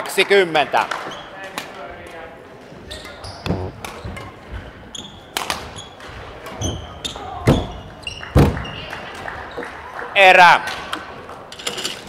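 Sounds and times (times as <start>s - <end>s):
shoe squeaks on court floor: 2.9s - 4.3s, 4.9s - 6.0s, 6.6s - 8.7s
racket striking shuttlecock: 3.5s - 4.3s.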